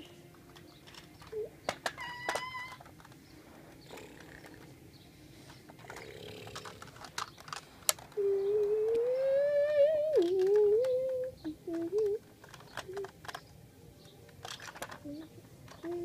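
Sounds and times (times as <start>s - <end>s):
toy cars clicking and tapping: 0.0s - 4.8s, 5.4s - 16.0s
child humming engine noise: 8.2s - 12.2s.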